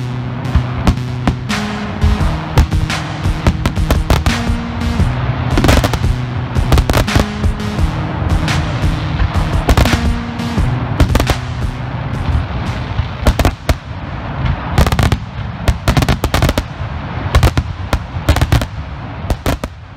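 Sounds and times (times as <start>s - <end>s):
music with held low notes: 0.0s - 15.1s
firework crackling: 0.0s - 19.9s.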